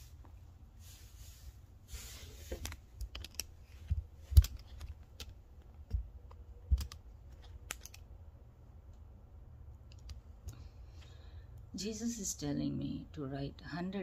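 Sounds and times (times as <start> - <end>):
clicks and taps handling objects: 2.5 - 8.1.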